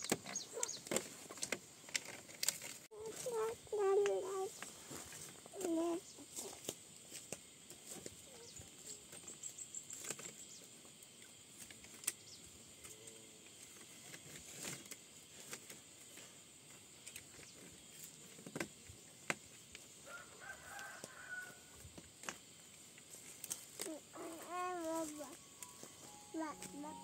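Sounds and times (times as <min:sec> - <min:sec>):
faint bird calls: 0:00.0 - 0:01.0
steady high hiss: 0:00.0 - 0:27.0.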